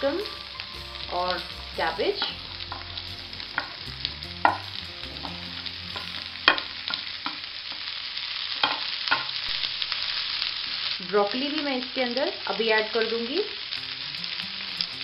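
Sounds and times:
vegetables sizzling in oil: 0.0 - 15.0
spatula knocking and scraping pan: 3.5 - 3.8, 4.4 - 5.4.

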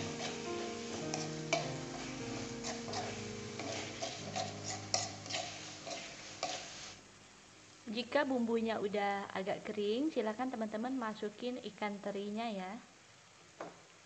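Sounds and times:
background music: 0.0 - 5.7
spatula scraping a wok: 0.0 - 7.0.

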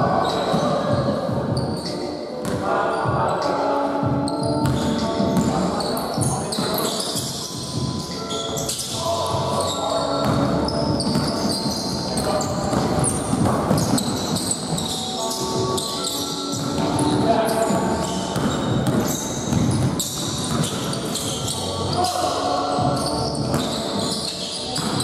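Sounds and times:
shoe squeaks: 0.1 - 2.2, 2.8 - 25.0
basketball bouncing on court: 4.1 - 5.6, 6.2 - 21.6, 22.8 - 24.2, 24.8 - 25.0.

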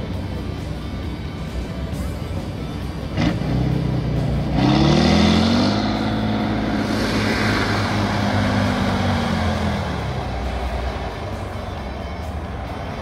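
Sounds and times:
diesel truck engine revving: 2.8 - 11.9.

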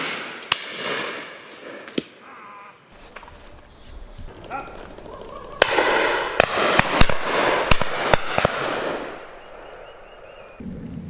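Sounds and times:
shotguns firing: 0.0 - 2.1, 5.6 - 10.3.

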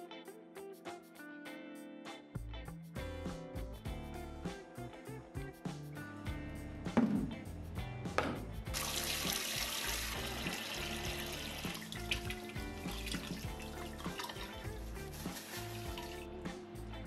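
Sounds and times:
background music: 0.0 - 17.0
water pouring into a tank: 8.7 - 16.2.

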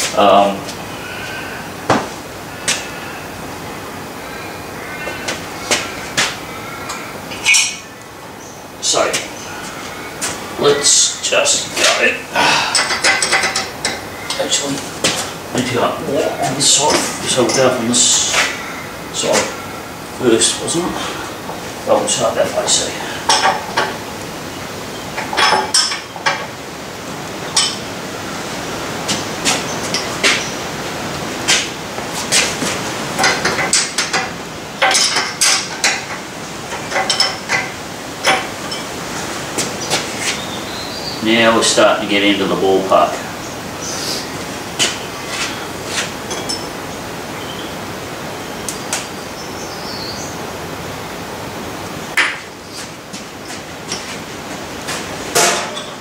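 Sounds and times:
steady background hiss: 0.0 - 56.0
spanner clinking on metal bolts: 12.7 - 14.4, 23.3 - 24.0, 25.2 - 26.5, 33.2 - 38.9.

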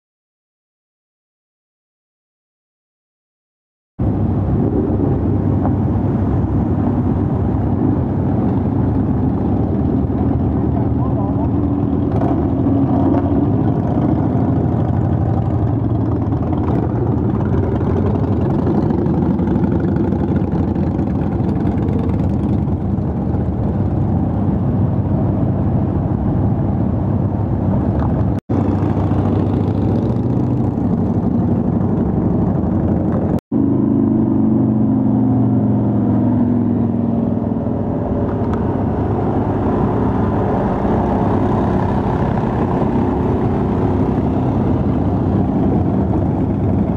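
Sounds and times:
motorcycles riding past: 4.1 - 46.9.

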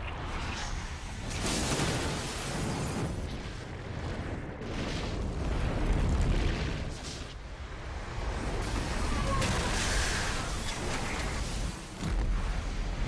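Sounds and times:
deep rumble of explosions and fire: 0.0 - 13.0
rushing surges: 8.1 - 13.0.

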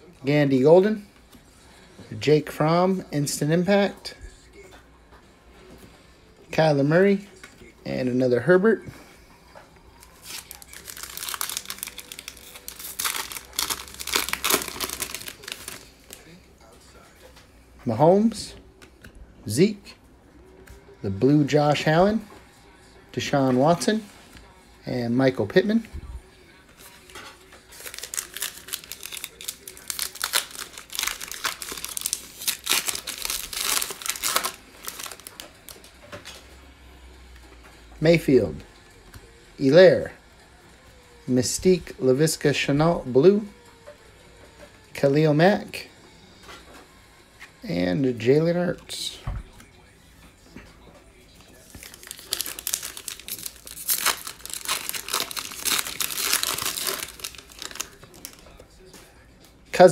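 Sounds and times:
foil wrapper tearing and crinkling: 10.0 - 16.2, 27.7 - 35.9, 51.5 - 58.5.

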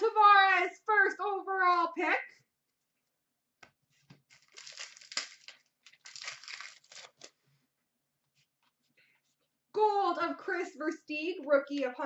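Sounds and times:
plastic wrapper crinkling: 4.1 - 7.4.

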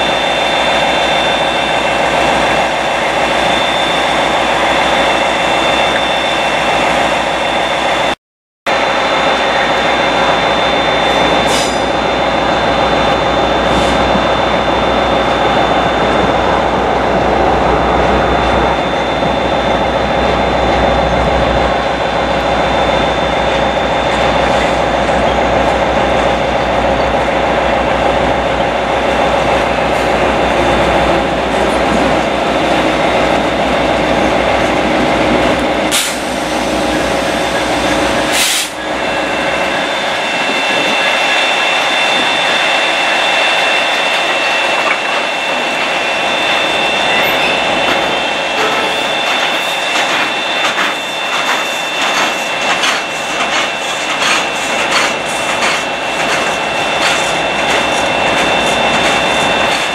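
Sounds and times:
diesel locomotive engine drone: 0.0 - 59.9
brief air hisses: 11.5 - 11.9, 35.9 - 37.4, 38.2 - 38.8.

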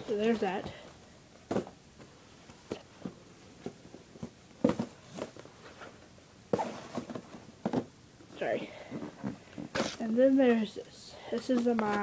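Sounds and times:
cardboard boxes tapping and knocking: 1.5 - 1.8, 3.0 - 5.4, 6.6 - 7.9.

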